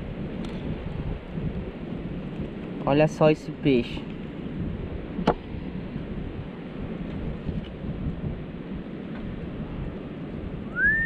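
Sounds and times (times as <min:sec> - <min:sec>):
wind buffeting microphone: 0:00.0 - 0:11.0
high whistled note: 0:10.7 - 0:11.0.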